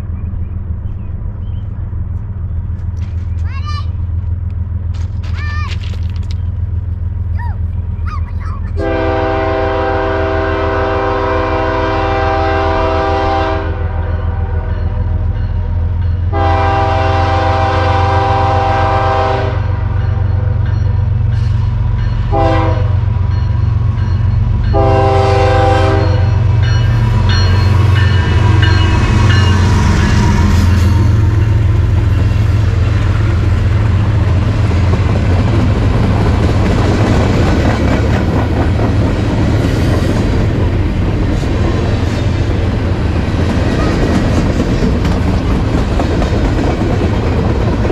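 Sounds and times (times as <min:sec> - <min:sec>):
diesel engine rumble: 0:00.0 - 0:10.4
train air horn blasts: 0:08.8 - 0:14.8, 0:16.3 - 0:20.0, 0:22.3 - 0:23.1, 0:24.7 - 0:31.1
train wheels clattering on rails: 0:26.2 - 0:47.9.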